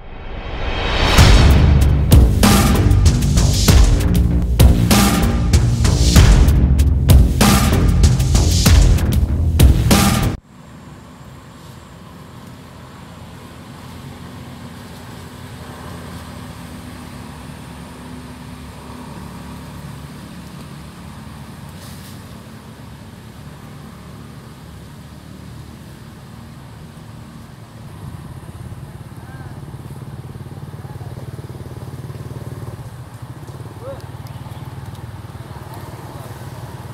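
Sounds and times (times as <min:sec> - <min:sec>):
brief hiss: 0:21.8 - 0:22.3.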